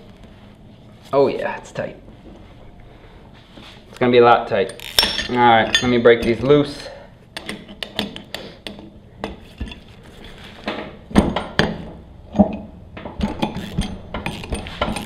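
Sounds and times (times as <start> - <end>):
metal tools clinking and knocking: 4.6 - 6.6, 13.2 - 15.0.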